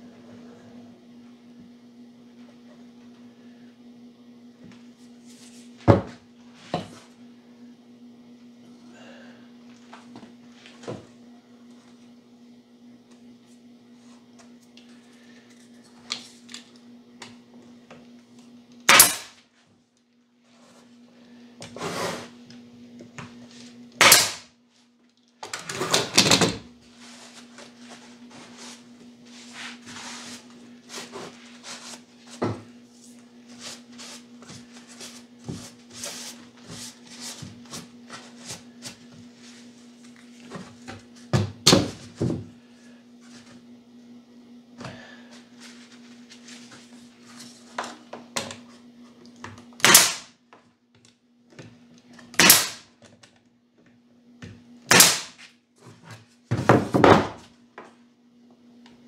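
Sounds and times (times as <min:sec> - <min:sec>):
loud sharp cracks: 0:18.9 - 0:19.4, 0:24.0 - 0:24.5, 0:49.8 - 0:50.3, 0:52.4 - 0:52.9, 0:54.9 - 0:55.4.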